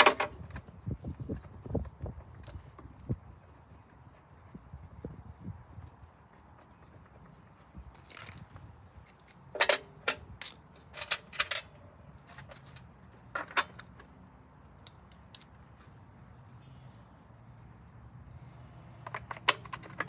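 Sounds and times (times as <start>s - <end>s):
plastic parts clacking onto engine: 19.0s - 20.0s.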